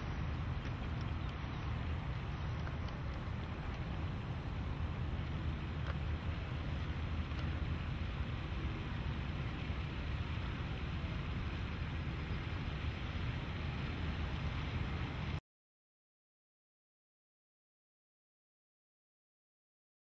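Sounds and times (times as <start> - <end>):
wind buffeting microphone: 0.0 - 15.4.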